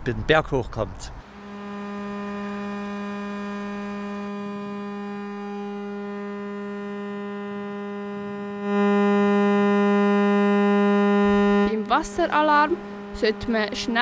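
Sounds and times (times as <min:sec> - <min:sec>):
siren steady low tone: 0:01.2 - 0:14.0.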